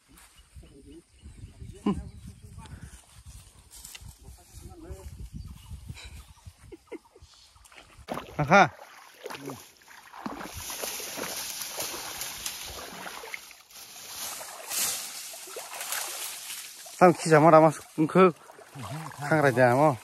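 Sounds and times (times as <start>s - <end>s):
water sloshing and splashing: 7.6s - 20.0s
brush rustling: 9.0s - 20.0s.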